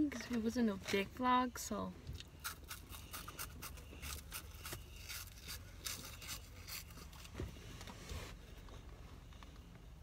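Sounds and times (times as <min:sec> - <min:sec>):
vehicle cabin rumble: 0:06.9 - 0:10.0.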